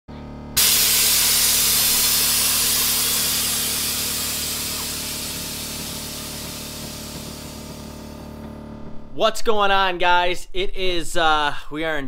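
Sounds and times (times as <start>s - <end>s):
low hum: 0.1s - 9.3s
air suspension hissing: 0.6s - 8.4s.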